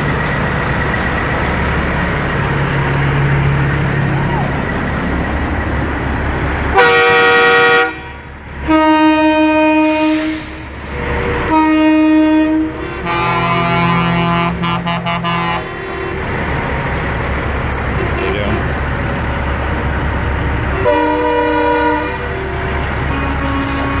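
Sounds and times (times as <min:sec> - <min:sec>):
diesel engines rumbling: 0:00.0 - 0:24.0
truck air horn blasts: 0:06.7 - 0:16.3, 0:20.7 - 0:24.0.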